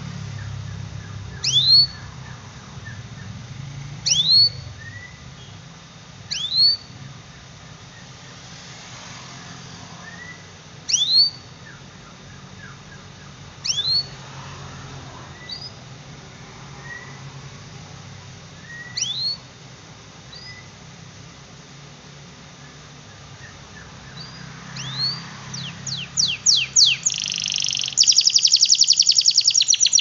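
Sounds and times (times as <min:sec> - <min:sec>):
canary sharp rising calls: 0:00.0 - 0:05.3, 0:06.3 - 0:07.0, 0:09.3 - 0:11.8, 0:13.6 - 0:15.8, 0:16.7 - 0:17.4, 0:18.6 - 0:19.5, 0:23.1 - 0:30.0
canary soft chirps: 0:00.2 - 0:03.4, 0:04.0 - 0:05.6, 0:06.3 - 0:08.5, 0:10.0 - 0:14.2, 0:15.3 - 0:15.8, 0:16.8 - 0:17.3, 0:18.6 - 0:19.5, 0:20.3 - 0:20.8, 0:22.6 - 0:30.0.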